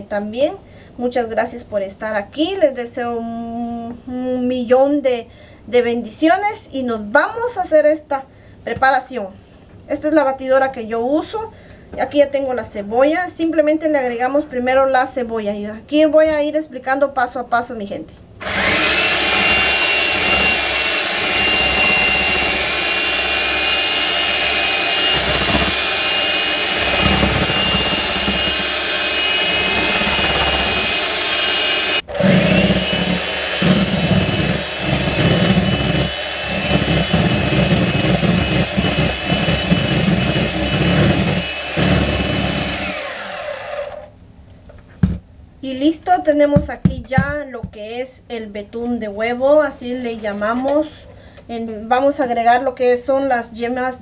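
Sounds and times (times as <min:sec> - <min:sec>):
electric mixer motor whine: 0:18.4 - 0:44.1.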